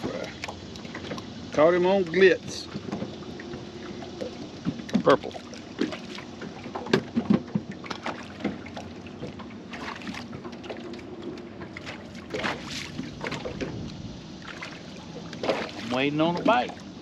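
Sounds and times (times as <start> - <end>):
handling knocks and clicks on boat: 0.0 - 16.9
faint steady hum: 0.0 - 17.0
wind on microphone: 12.3 - 14.6.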